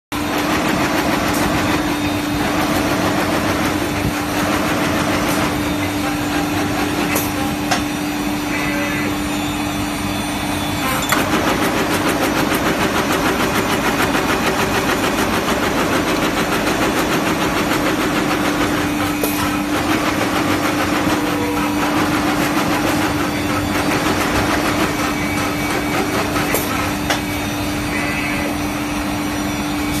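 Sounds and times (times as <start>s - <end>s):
machine humming: 0.2s - 30.0s
machine parts clicking and knocking: 11.0s - 12.5s.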